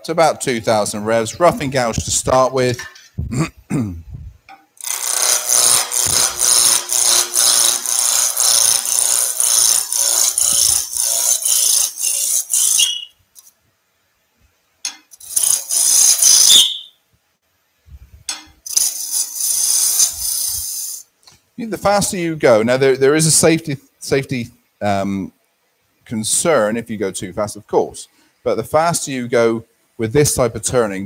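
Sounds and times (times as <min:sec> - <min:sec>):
gouge cutting wood on a lathe: 0:04.8 - 0:13.0, 0:15.2 - 0:16.5, 0:18.7 - 0:21.0
tool squealing: 0:04.8 - 0:13.5, 0:15.1 - 0:16.9, 0:18.7 - 0:21.0.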